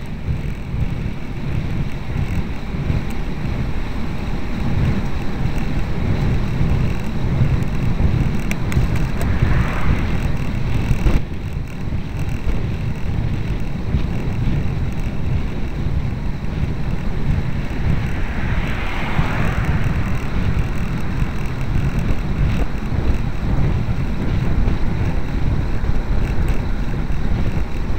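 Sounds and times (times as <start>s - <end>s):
wind buffeting microphone: 0.0s - 27.9s
car passing: 0.1s - 27.9s.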